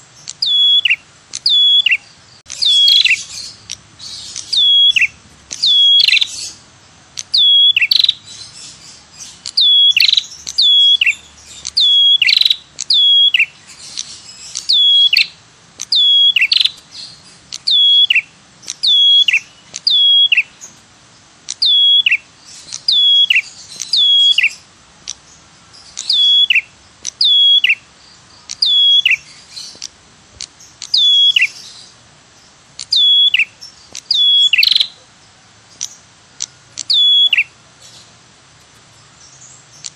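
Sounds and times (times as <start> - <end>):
bird call with falling notes: 0.0 - 6.6, 7.2 - 20.7, 21.5 - 24.6, 25.9 - 27.8, 28.5 - 29.8, 30.7 - 31.9, 32.8 - 35.1, 36.8 - 37.6.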